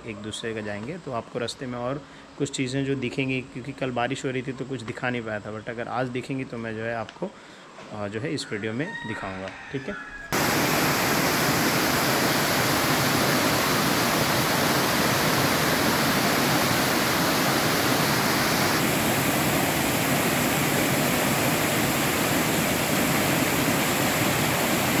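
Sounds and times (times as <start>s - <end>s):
water rushing: 10.4s - 25.0s.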